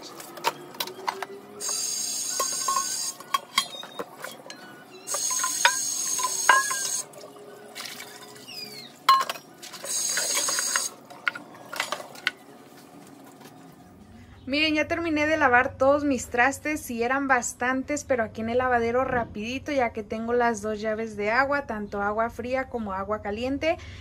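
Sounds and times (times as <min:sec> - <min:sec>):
dishes clinking and clattering: 0:02.3 - 0:12.4
tap water running: 0:05.1 - 0:12.4.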